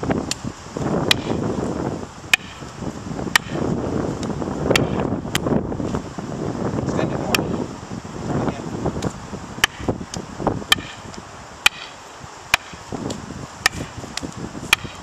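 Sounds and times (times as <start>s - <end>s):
fighting sticks clacking: 10.7s - 12.0s.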